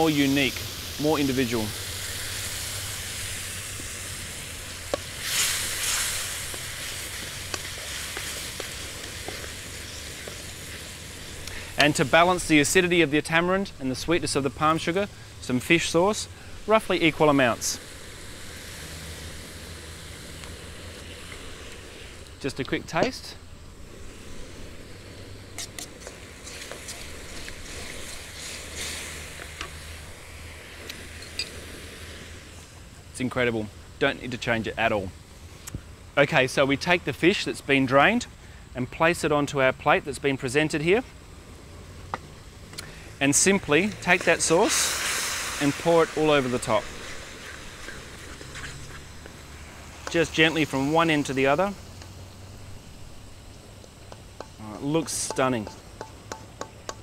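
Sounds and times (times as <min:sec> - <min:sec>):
sauce sizzling in a wok: 0:00.0 - 0:12.8, 0:16.5 - 0:22.3, 0:23.8 - 0:32.6, 0:41.4 - 0:54.8
wooden spatula stirring: 0:04.9 - 0:11.9.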